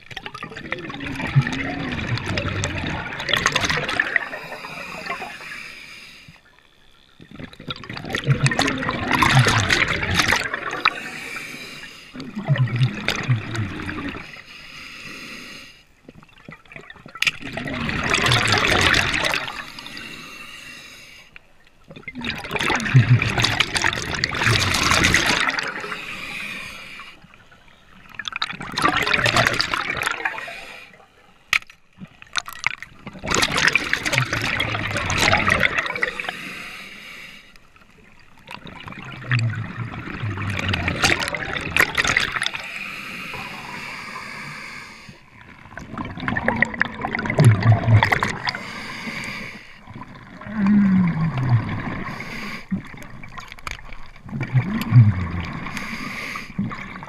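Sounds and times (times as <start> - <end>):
diver exhaling bubbles underwater: 0.2 - 5.4, 7.3 - 11.4, 12.2 - 14.4, 16.4 - 20.0, 21.9 - 26.7, 28.1 - 30.6, 32.0 - 36.4, 38.5 - 42.7, 45.4 - 57.0.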